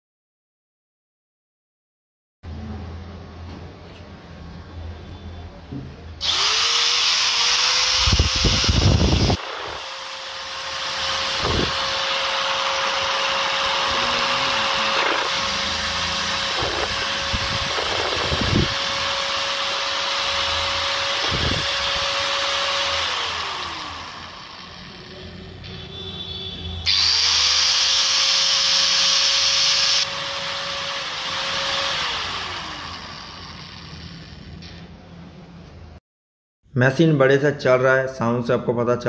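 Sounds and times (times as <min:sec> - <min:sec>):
angle grinder motor running: 0:06.2 - 0:25.9, 0:26.8 - 0:34.8.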